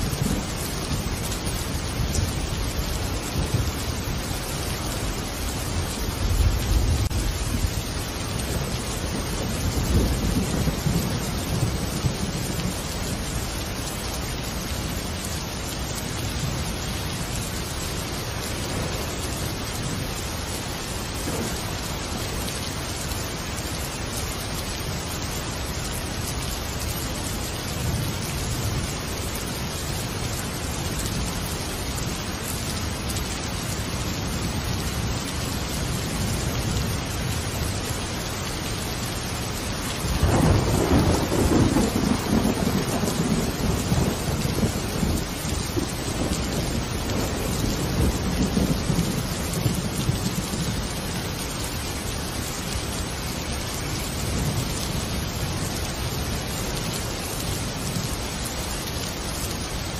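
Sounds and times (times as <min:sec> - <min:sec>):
low rumbles of thunder: 0:00.0 - 0:13.9, 0:16.2 - 0:22.3, 0:40.0 - 0:51.4
steady rain: 0:00.0 - 0:59.9.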